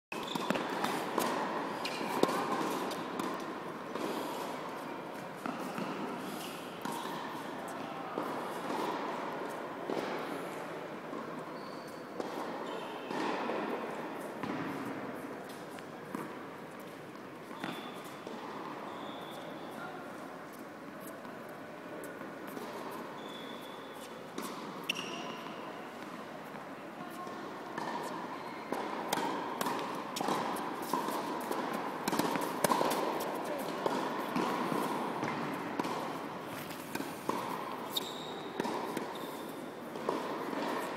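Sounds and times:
tennis hall background din: 0.1 - 40.9
tennis ball struck and bouncing: 14.4 - 16.4, 28.7 - 38.0, 38.6 - 39.2, 39.9 - 40.9.

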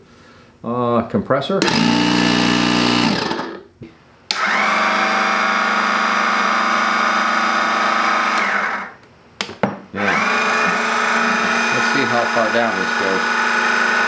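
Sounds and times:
electric car jack motor running: 1.6 - 3.6, 4.3 - 9.0, 10.0 - 14.0.

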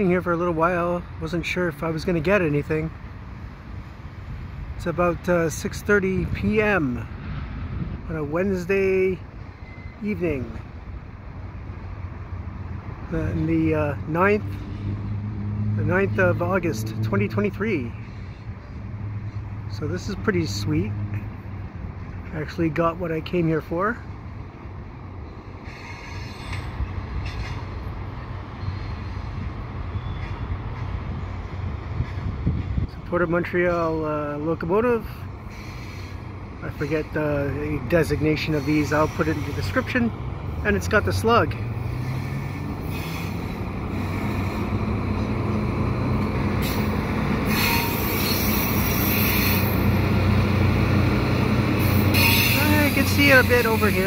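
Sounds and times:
diesel locomotive engine hum: 0.0 - 54.0
faint high squeal: 9.5 - 10.1, 28.6 - 29.3.

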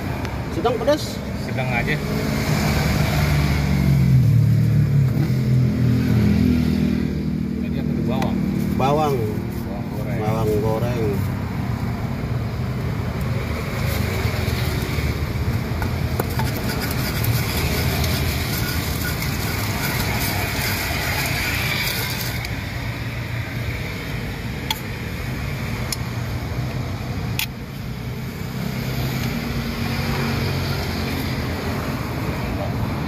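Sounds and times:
wooden pestle grinding on stone: 15.7 - 22.6.

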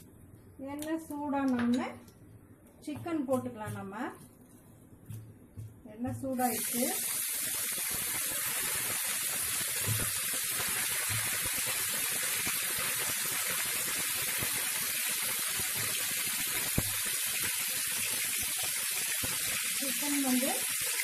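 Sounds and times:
chicken sizzling in hot oil: 6.4 - 21.0.

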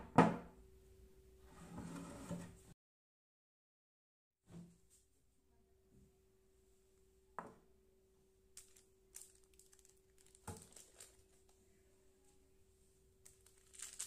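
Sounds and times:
baking paper crinkling: 8.5 - 11.6, 13.2 - 14.0.

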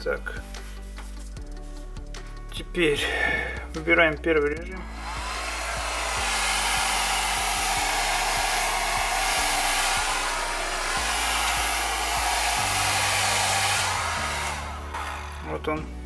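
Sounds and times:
hair dryer blowing air: 4.8 - 15.8.

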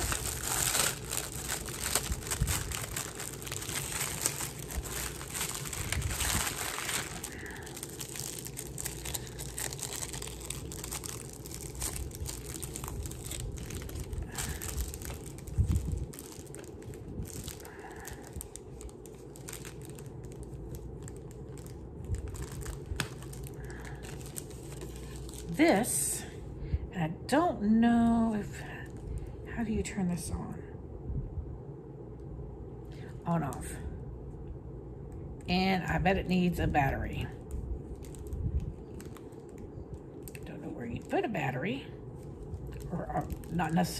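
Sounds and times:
packaging crinkling: 0.0 - 25.6, 37.4 - 41.2, 42.1 - 43.9.

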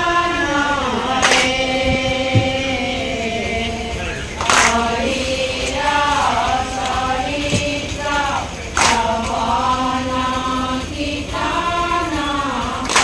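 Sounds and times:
women singing devotional chant: 0.0 - 13.0.

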